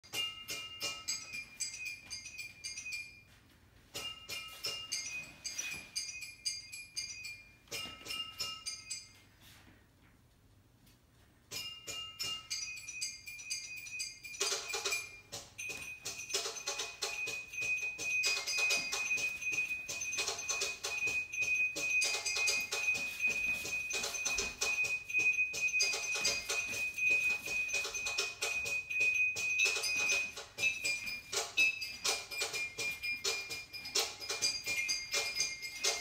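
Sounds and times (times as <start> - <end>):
high ringing tone: 11.6 - 36.0
dance music with glassy percussion: 12.1 - 36.0.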